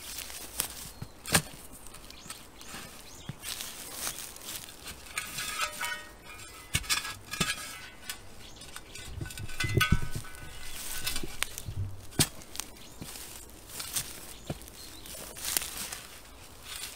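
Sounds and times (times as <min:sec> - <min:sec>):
shovel digging into soil: 0:00.0 - 0:16.9
heavy thuds: 0:05.1 - 0:12.6.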